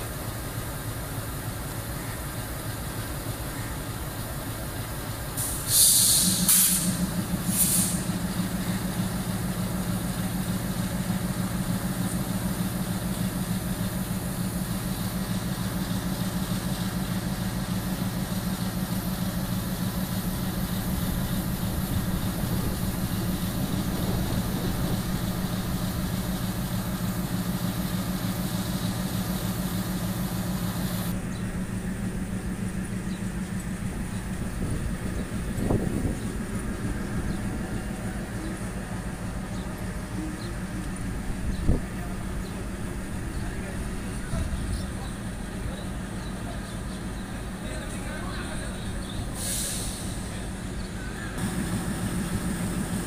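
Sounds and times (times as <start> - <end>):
diesel engine humming: 0.0 - 53.0
compressed air brake hiss: 5.3 - 8.3, 49.3 - 50.4.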